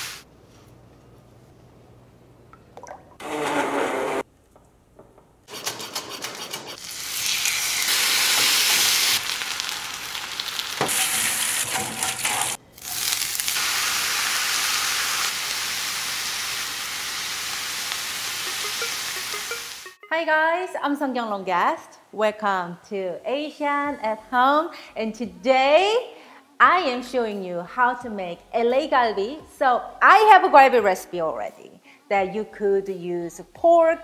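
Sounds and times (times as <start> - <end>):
ribs sizzling on grill pan: 6.8 - 19.9.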